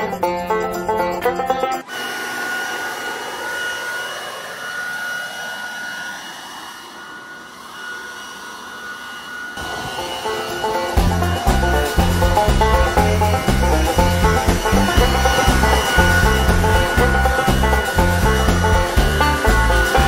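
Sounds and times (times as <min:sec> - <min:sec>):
banjo music: 0:00.0 - 0:01.9, 0:09.7 - 0:20.0
leaf blower running: 0:01.7 - 0:20.0.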